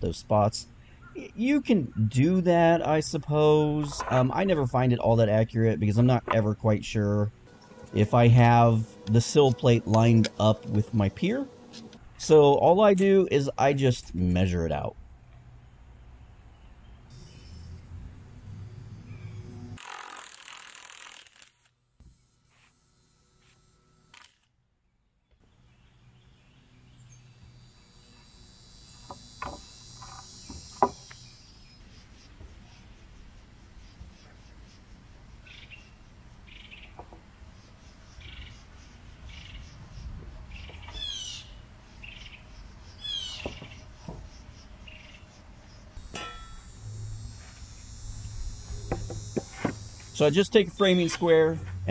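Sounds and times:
birds chirping: 0:00.1 - 0:14.8, 0:25.3 - 0:46.1
sharp knocks: 0:29.1 - 0:31.1.

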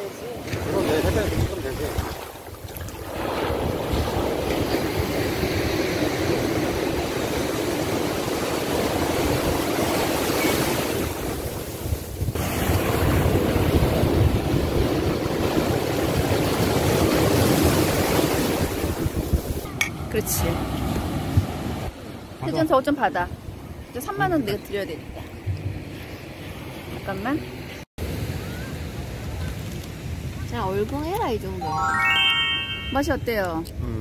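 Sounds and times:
surf washing up sandy beach: 0:00.0 - 0:23.0.

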